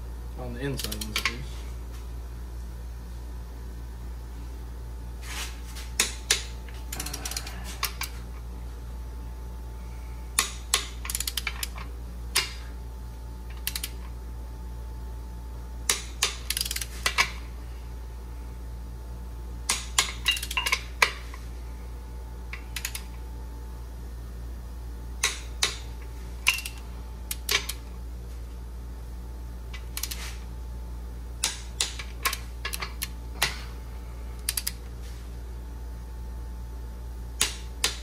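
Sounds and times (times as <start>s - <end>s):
steady low hum: 0.0s - 38.0s
ratchet wrench clicking: 10.4s - 11.8s, 13.5s - 14.0s, 16.2s - 16.9s, 22.6s - 23.1s, 29.8s - 30.2s, 34.4s - 34.8s.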